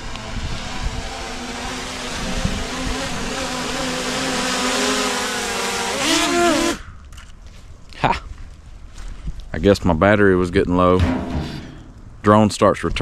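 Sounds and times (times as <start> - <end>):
drone propeller whine: 0.0 - 6.8.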